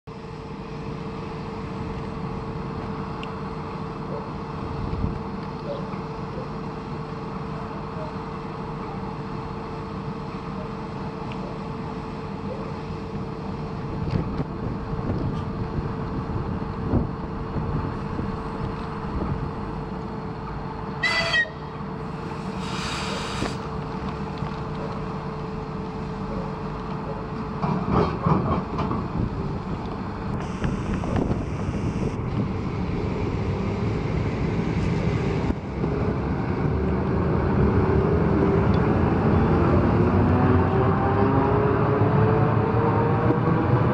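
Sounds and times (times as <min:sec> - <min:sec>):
electric train humming: 0:00.1 - 0:43.9
short high whistle: 0:21.0 - 0:21.6
brief air hiss: 0:22.2 - 0:23.7, 0:30.4 - 0:32.2
train knocks moving off: 0:27.0 - 0:29.7.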